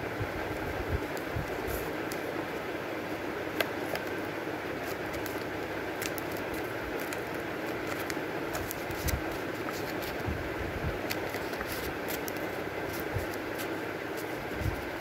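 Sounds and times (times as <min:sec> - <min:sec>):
steady background noise: 0:00.0 - 0:15.0
stiff paper rustling: 0:03.5 - 0:10.4, 0:11.0 - 0:15.0.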